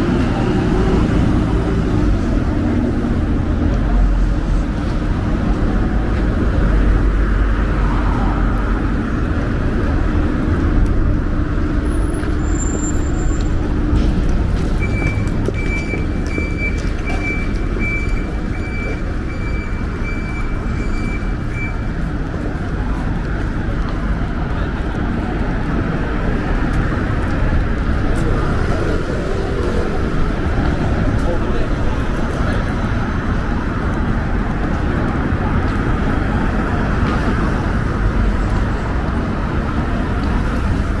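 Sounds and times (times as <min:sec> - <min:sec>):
vehicle engine rumble: 0:00.0 - 0:41.0
high electronic beeps: 0:14.8 - 0:21.9.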